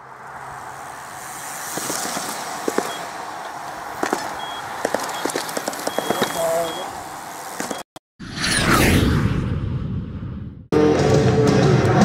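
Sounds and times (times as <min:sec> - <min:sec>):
bike tyres and wind rushing: 0:00.0 - 0:08.0
short high beeps: 0:04.4 - 0:06.9.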